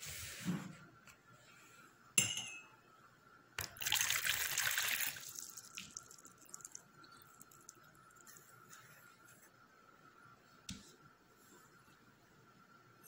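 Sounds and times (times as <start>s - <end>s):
water dripping: 3.6s - 8.4s
water pouring into bowl: 3.6s - 8.4s.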